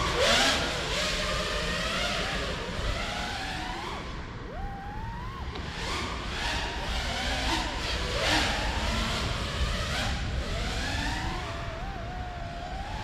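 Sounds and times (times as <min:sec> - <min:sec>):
drone motors whining: 0:00.0 - 0:13.0.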